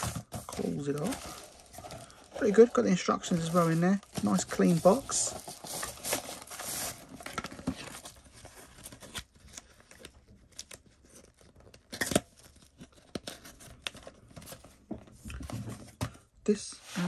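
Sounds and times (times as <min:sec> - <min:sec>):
plastic sleeve crinkling: 0:00.0 - 0:09.2
cardboard rustling: 0:00.0 - 0:11.7.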